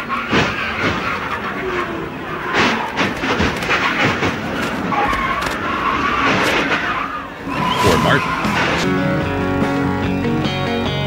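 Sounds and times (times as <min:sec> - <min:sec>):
hard bangs and clattering: 0:00.0 - 0:07.6
loud car engine and road roar: 0:00.0 - 0:11.0.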